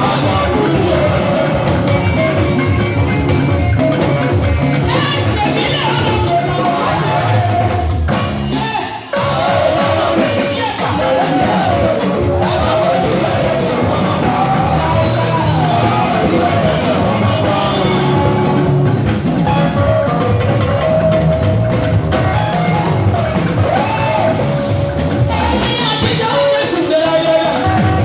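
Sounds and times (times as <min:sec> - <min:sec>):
woman singing gospel: 0:00.0 - 0:02.4, 0:04.8 - 0:18.7, 0:23.6 - 0:28.0
amplified band with steady beat: 0:00.0 - 0:28.0.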